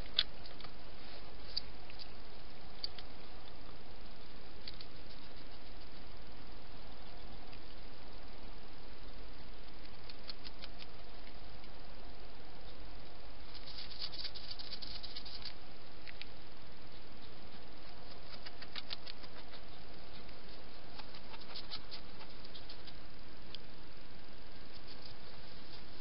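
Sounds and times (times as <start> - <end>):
steady hiss: 0.0 - 26.0
faint clicking and pattering: 9.6 - 11.8, 13.5 - 23.7.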